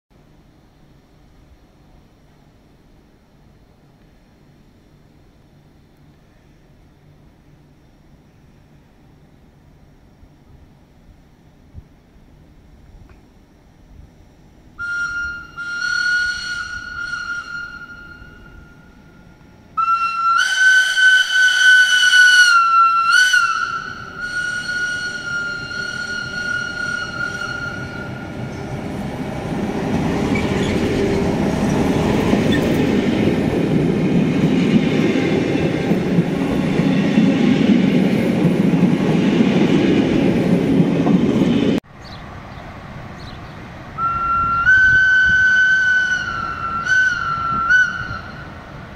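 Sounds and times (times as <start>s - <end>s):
train rolling past rumbling: 14.6s - 48.9s
high-pitched squeal: 14.8s - 19.4s, 23.0s - 33.5s.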